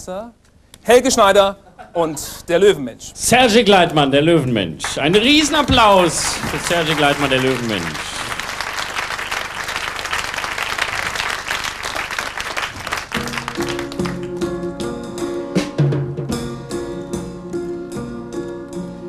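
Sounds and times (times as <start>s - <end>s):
audience applauding: 4.8s - 14.5s
piano chords: 13.1s - 19.0s.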